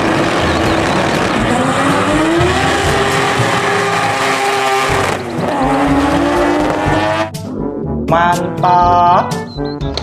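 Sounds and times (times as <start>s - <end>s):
racing car engine revving: 0.0s - 7.3s.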